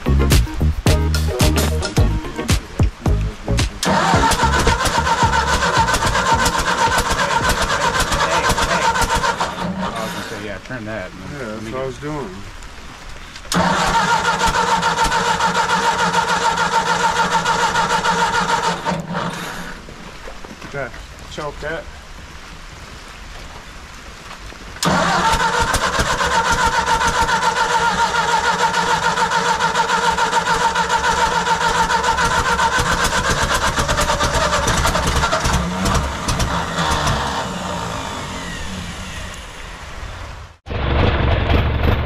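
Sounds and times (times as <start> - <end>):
tractor engine cranking: 3.7 - 10.4, 13.5 - 19.8, 24.8 - 39.4.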